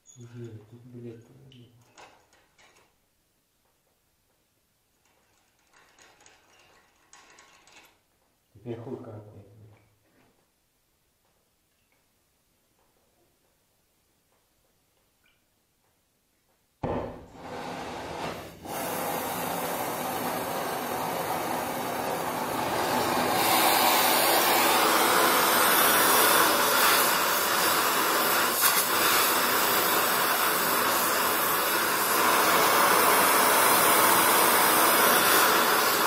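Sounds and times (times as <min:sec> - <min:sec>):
gas torch flame hissing: 0:16.9 - 0:36.0.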